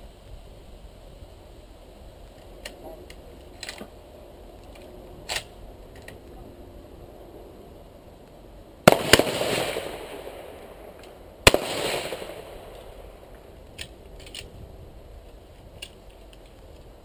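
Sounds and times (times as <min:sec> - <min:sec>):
rifle shots with rolling echo: 0:08.8 - 0:14.2.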